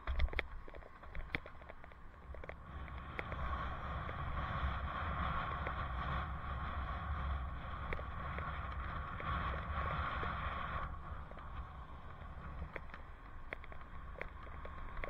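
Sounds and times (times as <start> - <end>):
sharp clicks and knocks: 0.0 - 3.4
wind rushing over microphone: 0.0 - 15.0
low rumble: 1.7 - 15.0.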